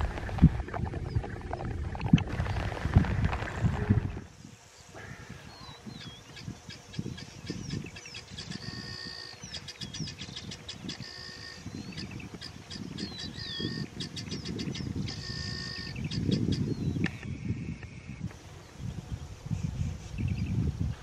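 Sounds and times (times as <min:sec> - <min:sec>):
elephant pulling up grass: 0:00.0 - 0:04.2
birds calling: 0:02.3 - 0:20.6.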